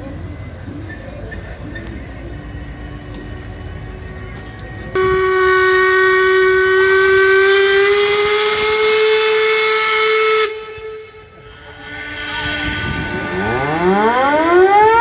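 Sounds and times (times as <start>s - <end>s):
steam whistle blast: 5.0s - 15.0s.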